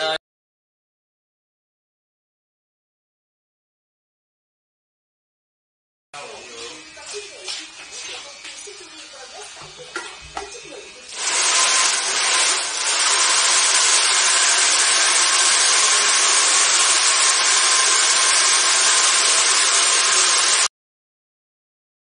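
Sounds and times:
hair dryer blowing: 9.9s - 20.7s.

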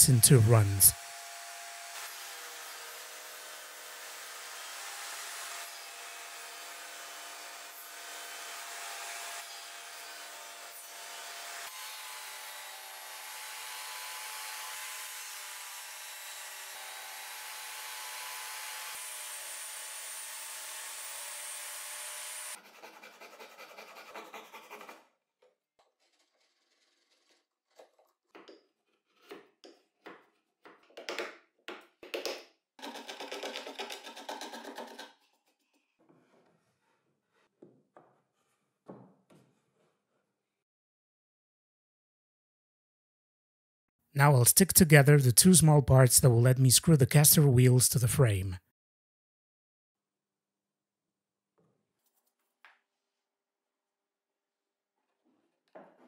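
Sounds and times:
table saw cutting wood: 0.0s - 25.0s.

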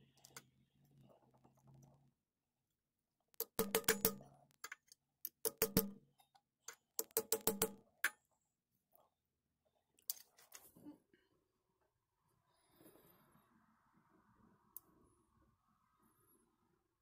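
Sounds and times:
hammer tapping metal tube: 3.4s - 6.1s, 6.7s - 8.2s.

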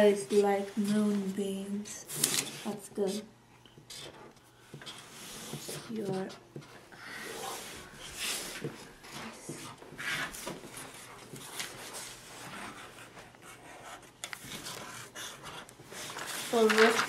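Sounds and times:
marker scratching on paper: 3.8s - 6.4s, 7.2s - 16.7s
papers handled: 15.8s - 17.0s.

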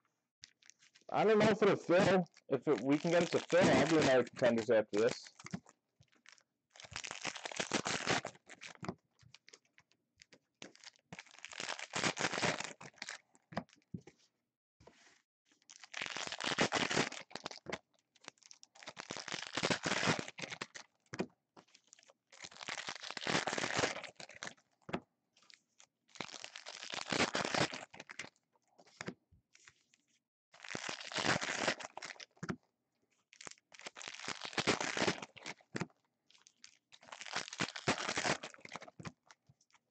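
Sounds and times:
foil wrappers tearing and crinkling: 0.4s - 5.6s, 6.2s - 9.4s, 10.6s - 13.2s, 15.7s - 20.8s, 21.9s - 24.5s, 26.2s - 28.3s, 30.6s - 32.4s, 33.4s - 35.7s, 36.4s - 39.0s.

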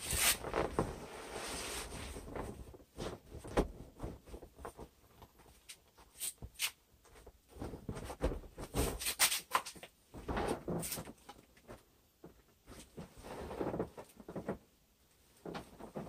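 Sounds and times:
air mattress rustling: 0.0s - 5.4s, 7.1s - 9.0s.

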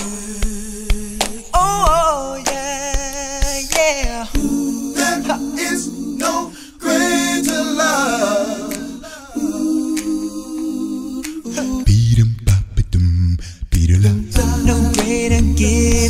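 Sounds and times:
lead voice singing: 0.0s - 16.0s
backing voices holding chords: 4.4s - 16.0s.

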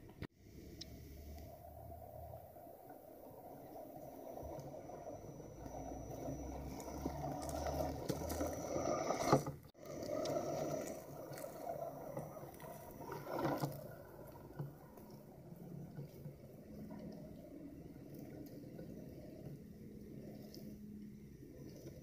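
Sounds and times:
electric motor and gear whine: 0.0s - 22.0s
tyres crunching through debris: 4.3s - 17.1s.

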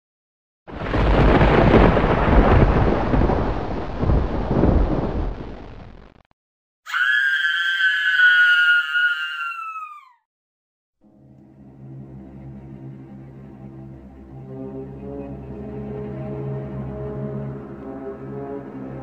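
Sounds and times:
thunderclap with rolling rumble: 0.7s - 6.2s
long high-pitched wail: 6.9s - 10.2s.

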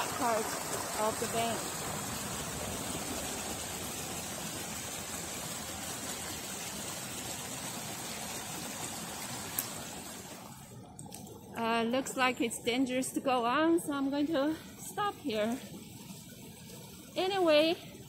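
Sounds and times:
creek water flowing: 0.0s - 18.0s.

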